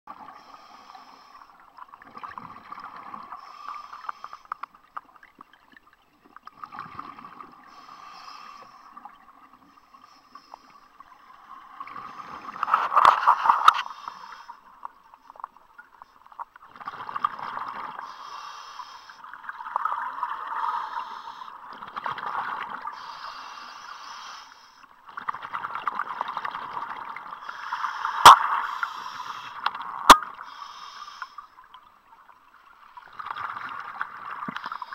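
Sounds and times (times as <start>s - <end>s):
diver breathing through regulator: 7.7s - 9.1s, 11.9s - 14.8s, 18.0s - 19.2s, 27.4s - 29.7s, 30.3s - 31.6s.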